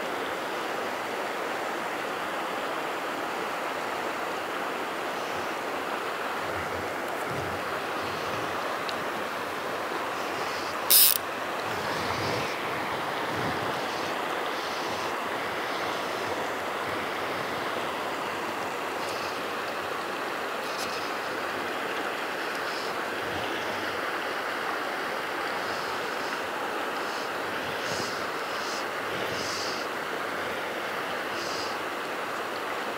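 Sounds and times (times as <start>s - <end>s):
flowing river water: 0.0s - 32.9s
short loud hiss: 10.9s - 11.2s.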